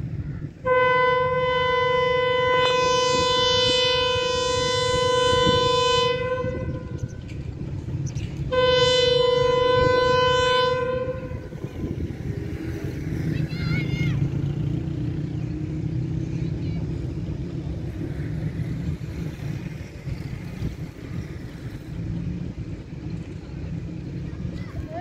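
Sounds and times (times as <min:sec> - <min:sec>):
low rumble: 0:00.0 - 0:13.6
diesel locomotive horn blast: 0:00.6 - 0:07.5, 0:08.4 - 0:12.6.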